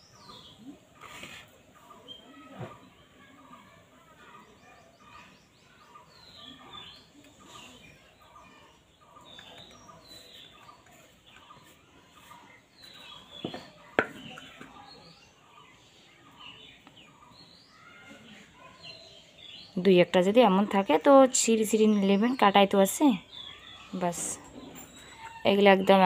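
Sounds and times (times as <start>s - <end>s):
birds chirping: 0.0s - 26.0s.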